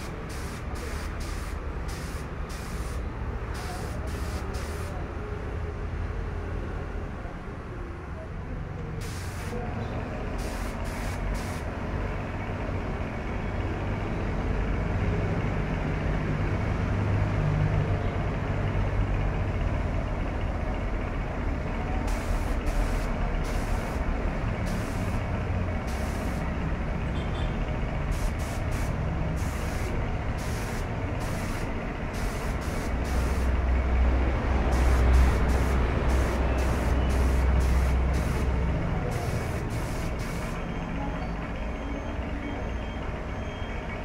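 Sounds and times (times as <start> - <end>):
air spray gun hissing: 0.0 - 5.0, 9.0 - 9.6, 10.4 - 11.7, 22.1 - 26.6, 28.0 - 33.6, 34.6 - 40.6
low mechanical rumble: 18.2 - 41.6.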